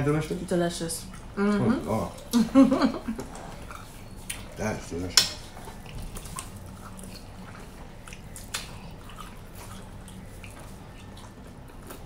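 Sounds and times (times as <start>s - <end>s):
steady low hum: 0.0s - 12.0s
person chewing: 3.2s - 12.0s.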